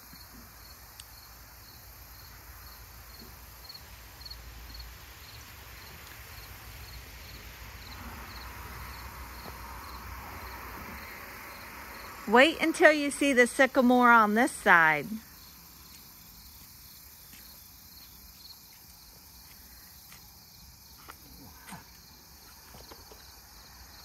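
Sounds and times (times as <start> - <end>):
insect chirping: 0.0 - 24.0
soft background hiss: 0.3 - 17.2.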